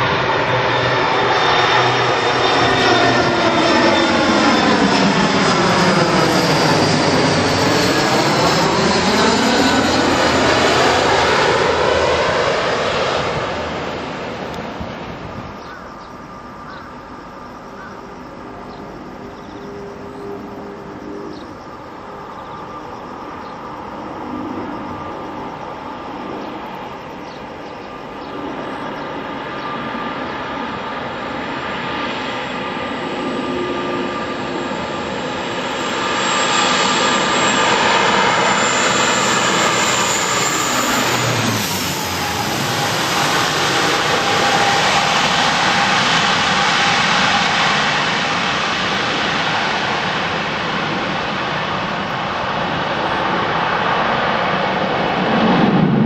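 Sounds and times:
propeller airliner passing overhead: 0:00.0 - 0:56.0.

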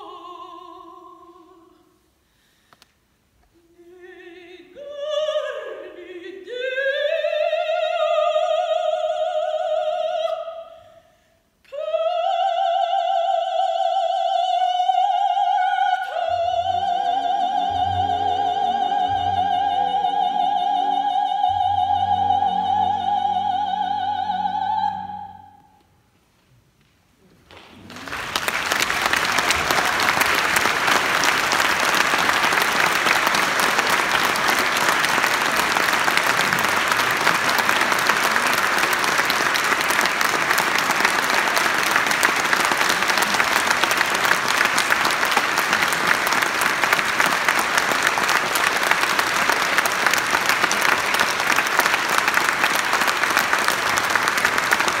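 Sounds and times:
audience applauding: 0:27.5 - 0:55.0.

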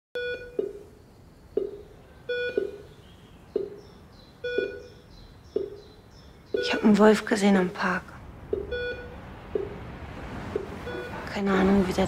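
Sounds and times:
patient monitor beeping: 0:00.2 - 0:03.0, 0:04.4 - 0:07.0, 0:08.5 - 0:09.8, 0:10.6 - 0:11.4.

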